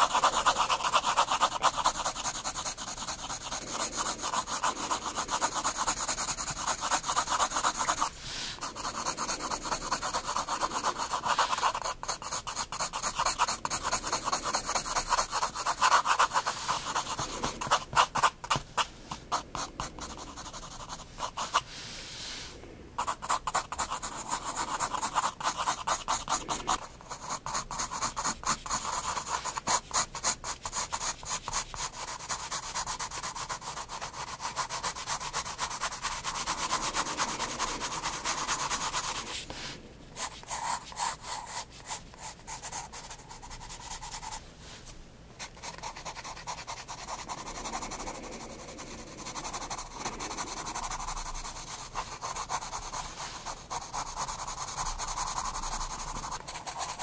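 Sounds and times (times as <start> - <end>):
pencil scratching on paper: 0.0 - 21.7, 23.0 - 39.6, 40.2 - 44.4, 45.4 - 57.0.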